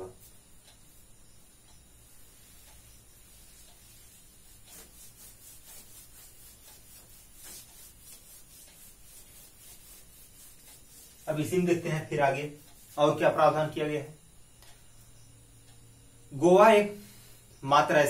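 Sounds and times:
duster rubbing on whiteboard: 2.2s - 14.0s.

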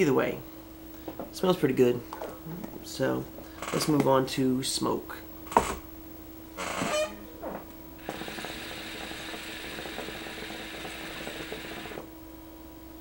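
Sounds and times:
air hissing: 8.0s - 12.1s
hookah water bubbling: 8.0s - 12.1s.

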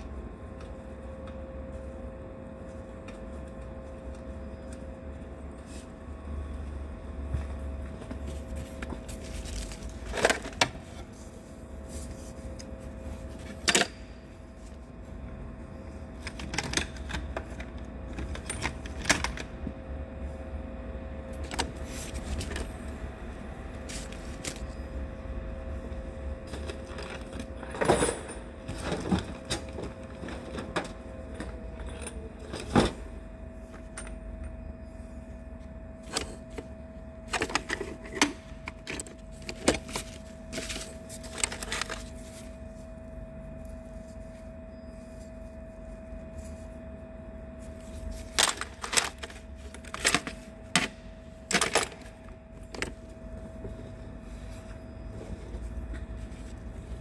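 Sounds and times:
steady low hum: 0.0s - 57.0s
metal tools clinking and knocking: 26.6s - 29.0s.

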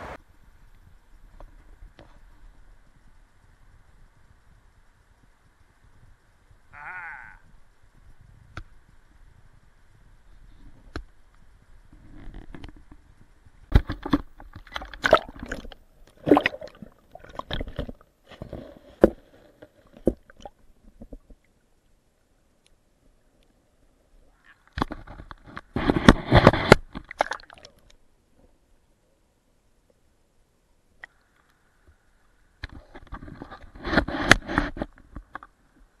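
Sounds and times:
water sloshing and splashing: 13.7s - 21.5s, 24.4s - 27.9s.

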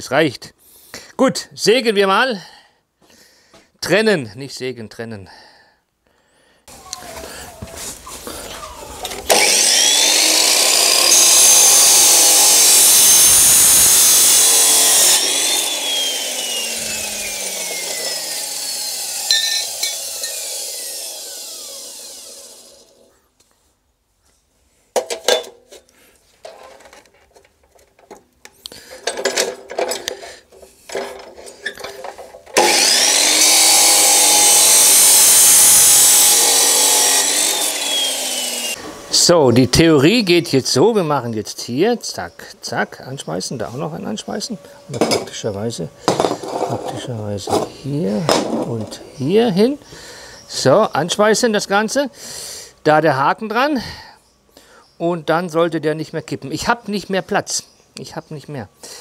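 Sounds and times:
chop saw cutting steel tube: 9.2s - 23.1s, 32.5s - 38.9s
motor spinning down whine: 9.3s - 23.0s.

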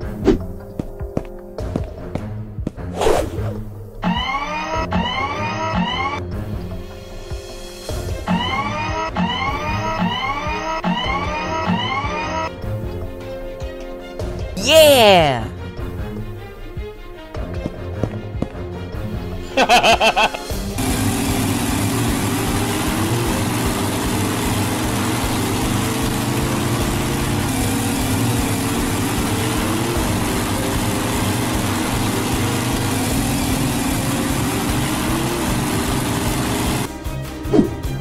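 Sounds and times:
vehicle engine running: 20.7s - 37.0s.

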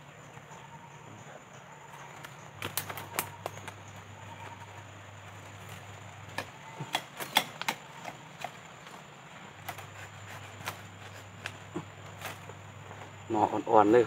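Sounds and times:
dry bamboo snapping and crackling: 2.0s - 4.0s, 5.2s - 12.7s.

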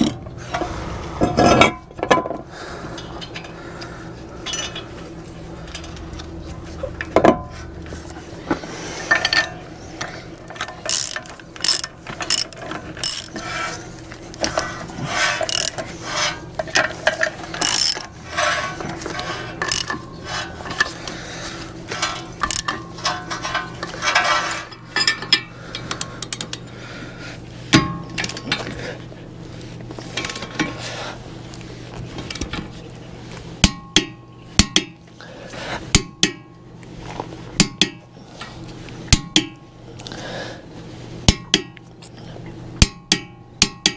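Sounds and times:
ratchet wrench clicking: 10.8s - 13.4s, 15.4s - 15.8s, 17.6s - 18.5s, 19.6s - 20.0s, 22.1s - 22.8s.

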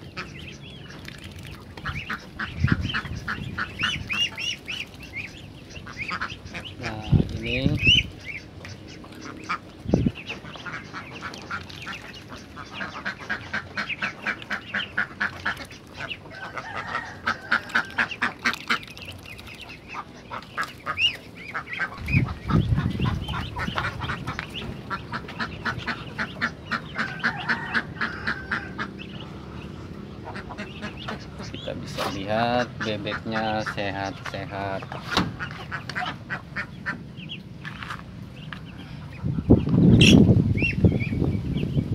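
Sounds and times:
ducks quacking: 0.0s - 41.6s
low rumble: 20.9s - 31.5s.

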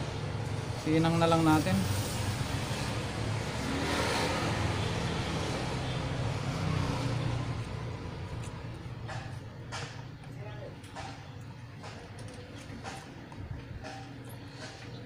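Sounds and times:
vehicle engine passing: 0.0s - 9.5s.

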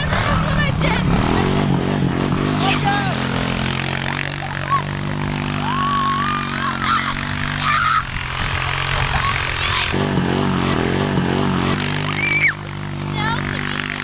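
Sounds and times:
atv engine running: 0.0s - 14.0s
riders yelling: 2.5s - 10.0s, 11.8s - 14.0s.

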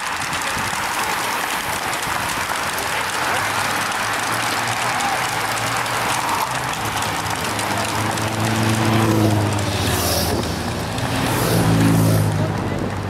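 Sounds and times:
bicycle tyres and freewheels whirring: 0.0s - 13.0s
spectators clapping: 0.0s - 13.0s
motorcycle engine hum: 1.7s - 13.0s.

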